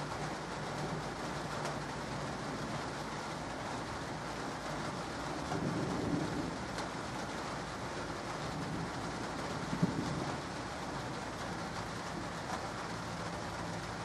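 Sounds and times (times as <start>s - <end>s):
light rain falling: 0.0s - 14.0s
distant thunder rumble: 4.1s - 13.7s.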